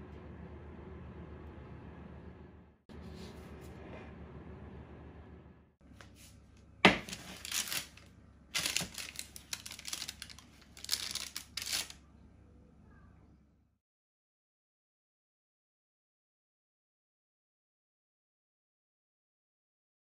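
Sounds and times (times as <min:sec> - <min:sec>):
baking paper crinkling: 0:06.0 - 0:12.0.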